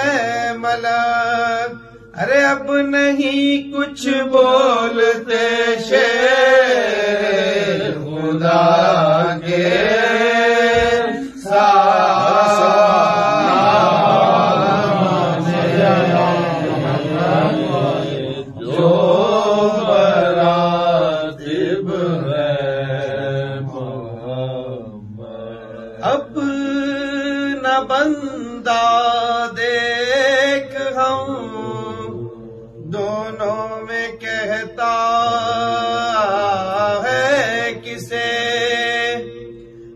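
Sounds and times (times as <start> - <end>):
solo voice chanting: 0.0 - 24.1.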